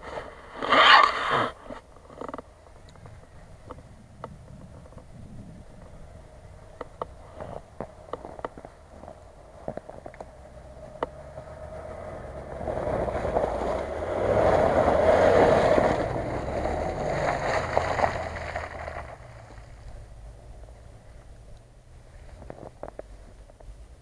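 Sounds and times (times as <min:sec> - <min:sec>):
vehicle driving past on mud: 0:10.3 - 0:22.1.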